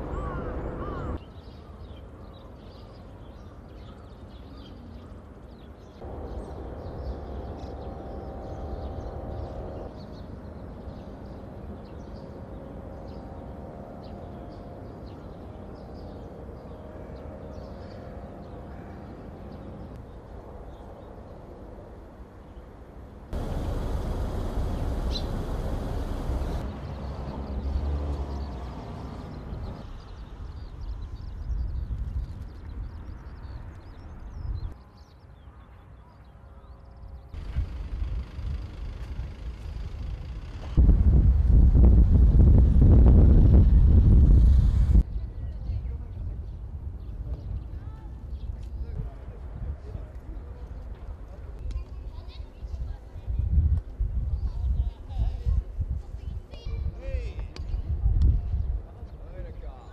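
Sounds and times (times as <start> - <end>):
low rumble of wind or traffic: 0.0 - 59.9
low rumble: 23.4 - 26.7
small birds chirping: 23.4 - 37.3.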